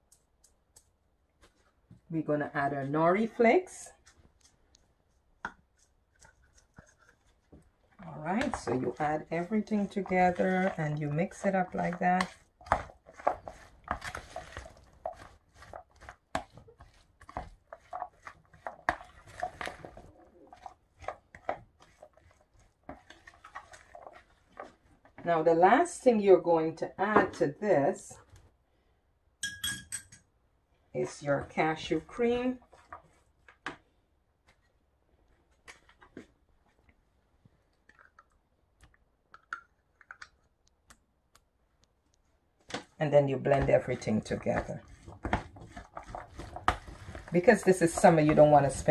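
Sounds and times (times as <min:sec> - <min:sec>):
spatula scraping plastic bowl: 0:02.6 - 0:26.2, 0:43.3 - 0:48.9.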